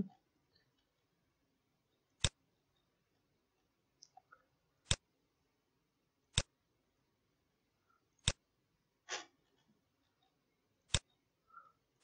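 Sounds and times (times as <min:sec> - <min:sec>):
computer mouse clicks: 0:04.8 - 0:05.0, 0:06.3 - 0:06.5, 0:08.2 - 0:08.4, 0:10.9 - 0:11.2.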